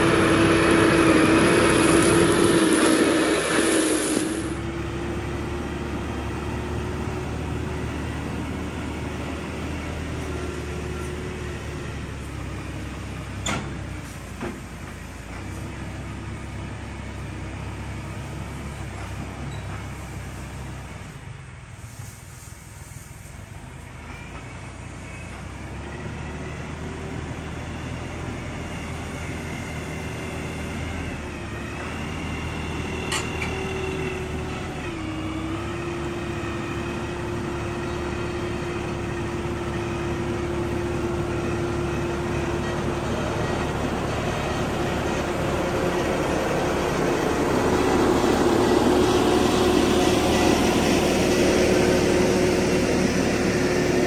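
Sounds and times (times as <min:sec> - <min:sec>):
tractor diesel engine: 0:00.0 - 0:54.0
box blade dragging over gravel: 0:01.0 - 0:04.6.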